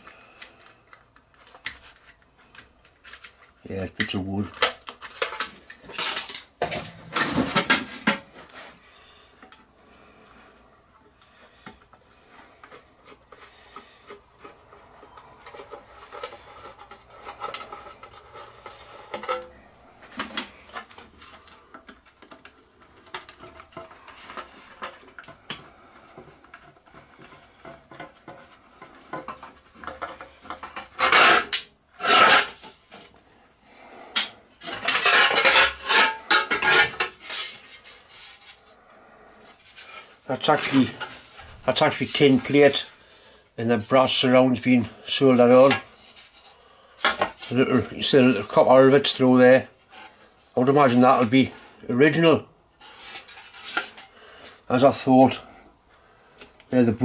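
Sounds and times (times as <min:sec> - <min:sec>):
metal lagging rattling and scraping: 0:34.6 - 0:38.0.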